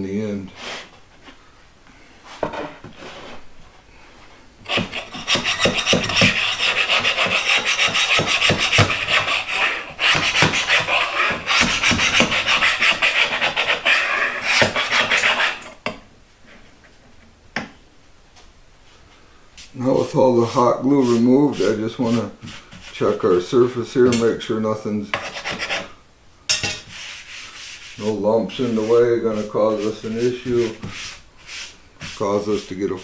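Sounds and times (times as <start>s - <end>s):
blade scraping glue off board: 4.7s - 15.7s.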